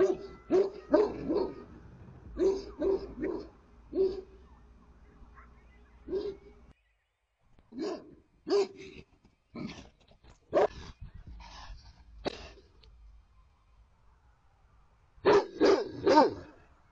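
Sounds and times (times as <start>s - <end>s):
dogs barking deeply: 0.0s - 4.3s, 15.2s - 16.5s.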